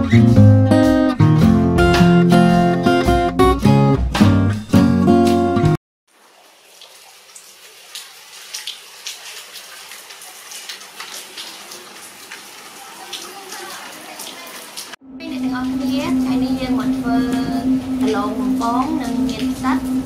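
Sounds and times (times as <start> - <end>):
acoustic guitar music: 0.0 - 5.8, 15.1 - 20.0
rain falling on foliage: 6.1 - 15.0
sharp drip ticks: 16.8 - 20.0.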